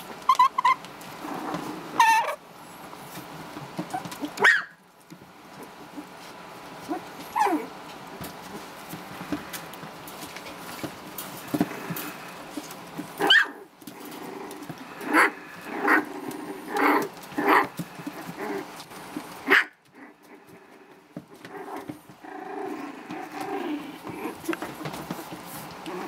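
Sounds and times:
puppies growling: 0:00.0 - 0:26.0
puppies yipping: 0:00.2 - 0:00.8, 0:01.9 - 0:02.4, 0:03.8 - 0:04.8, 0:11.4 - 0:20.6.

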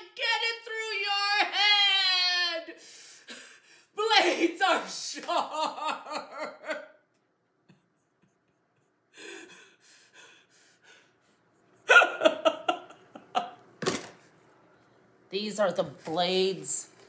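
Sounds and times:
woman sobbing: 0:04.2 - 0:07.0, 0:11.8 - 0:13.5
woman laughing: 0:05.2 - 0:07.0, 0:11.8 - 0:13.6.

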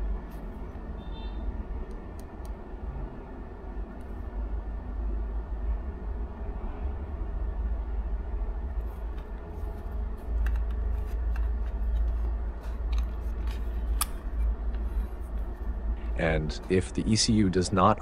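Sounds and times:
low background rumble: 0:00.0 - 0:18.0
pen and probe clicks and taps: 0:10.3 - 0:14.8.

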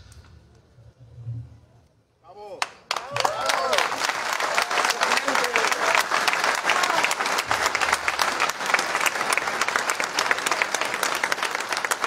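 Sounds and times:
crowd applauding: 0:02.6 - 0:12.0.

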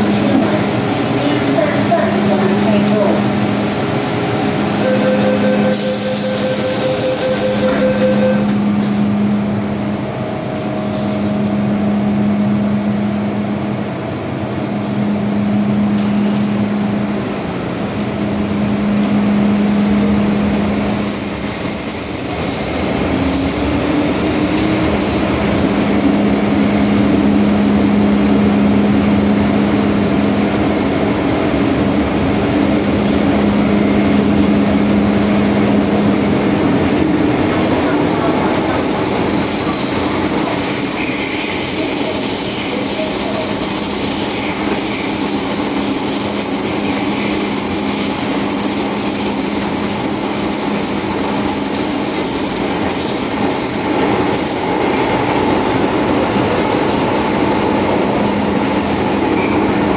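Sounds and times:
train running through tunnel: 0:00.0 - 0:59.9
train wheels squealing: 0:20.8 - 0:23.8, 0:39.2 - 0:49.4, 0:58.2 - 0:59.9.

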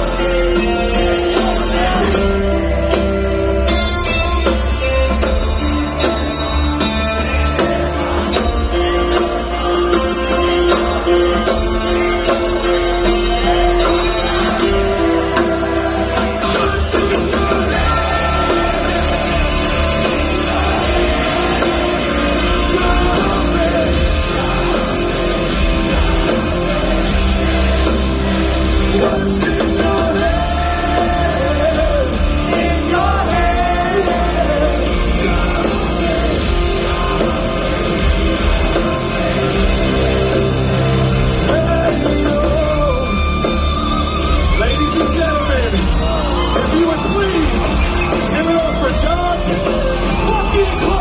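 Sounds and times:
person singing melodic vocal: 0:00.0 - 0:05.0, 0:07.3 - 0:38.1
electric guitars: 0:00.0 - 0:51.0
live heavy metal band: 0:00.0 - 0:51.0.

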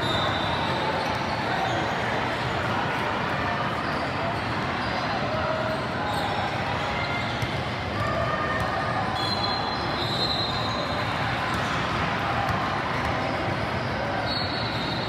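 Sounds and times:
gym crowd noise: 0:00.0 - 0:15.0
sneakers squeaking on court: 0:00.1 - 0:02.5.

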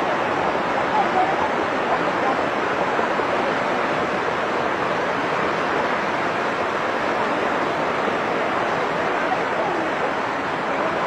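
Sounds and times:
floodwater rushing: 0:00.0 - 0:11.0.

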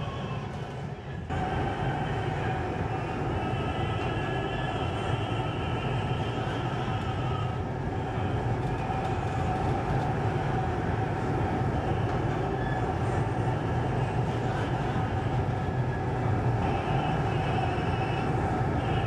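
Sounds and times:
faint hum: 0:00.0 - 0:19.0
tram interior rumble: 0:00.0 - 0:19.0.

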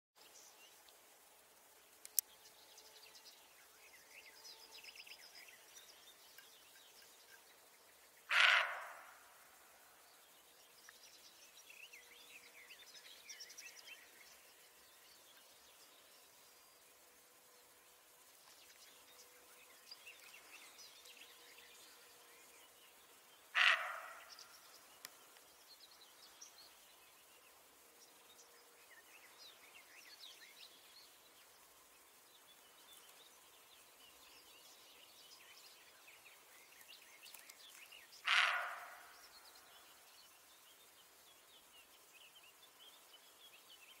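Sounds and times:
faint bird chirps: 0:03.6 - 0:17.0, 0:18.4 - 0:44.0
deer barking: 0:08.3 - 0:09.1, 0:23.6 - 0:24.2, 0:38.3 - 0:39.0.

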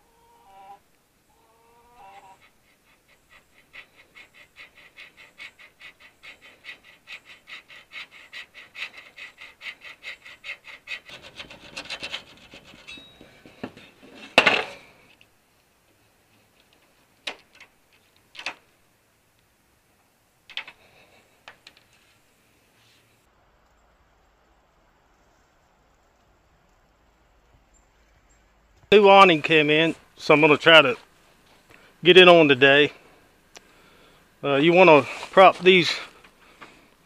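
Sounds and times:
hacksaw sawing metal: 0:03.5 - 0:13.8.

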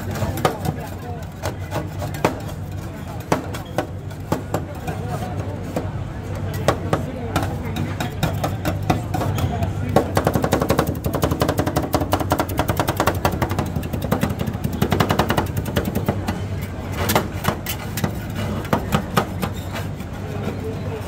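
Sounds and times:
metal spatulas chopping on cold plate: 0:06.6 - 0:16.4.

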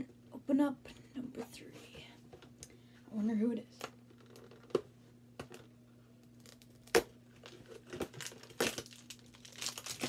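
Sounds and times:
cardboard snapping and tearing: 0:06.4 - 0:07.1, 0:07.9 - 0:10.0.

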